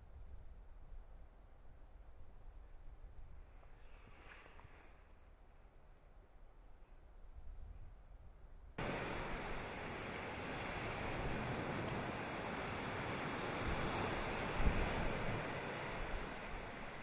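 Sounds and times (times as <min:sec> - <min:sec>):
sea waves breaking on rocks: 0:08.8 - 0:17.0.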